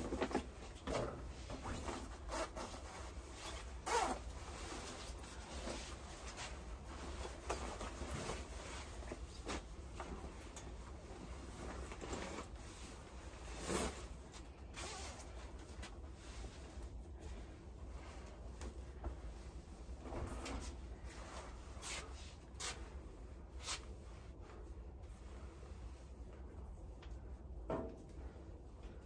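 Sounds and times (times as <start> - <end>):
clothes and bag handling: 0.0 - 26.6
nylon jacket rustling: 1.5 - 26.2
jacket unzipping: 2.2 - 4.8, 14.7 - 15.3.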